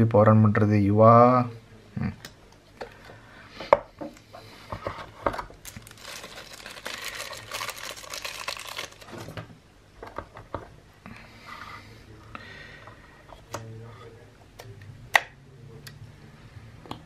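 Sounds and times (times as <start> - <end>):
plastic packaging crinkling: 5.3 - 9.4.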